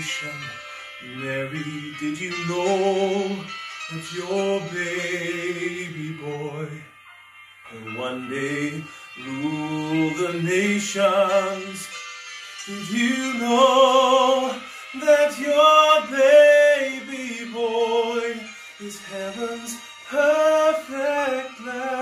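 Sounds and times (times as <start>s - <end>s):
man singing a slow ballad: 0.0s - 7.1s, 7.7s - 22.0s
singer breathing: 0.5s - 1.0s, 8.8s - 9.2s, 14.6s - 15.0s, 18.4s - 18.8s.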